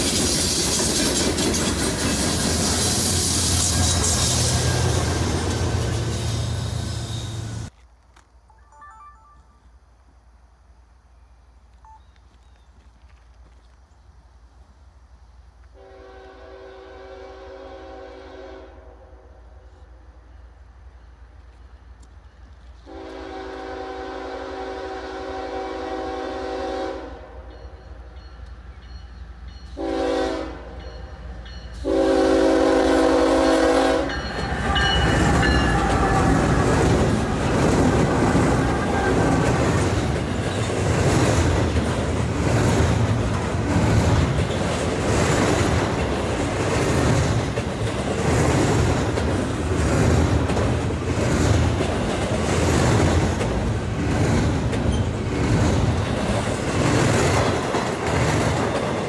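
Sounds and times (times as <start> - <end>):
diesel locomotive rumble: 0.0 - 7.7, 29.8 - 59.0
train wheels clacking on rails: 0.0 - 7.7, 33.9 - 59.0
train air horn: 2.8 - 7.7, 15.8 - 19.9, 22.8 - 27.5, 29.7 - 30.9, 31.8 - 39.5.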